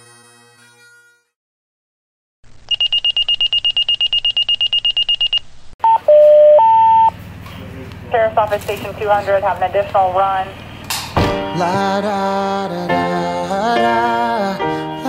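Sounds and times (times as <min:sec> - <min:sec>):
rapid high-pitched beeping: 0:02.7 - 0:05.4
alert tones high and low: 0:02.7 - 0:07.1.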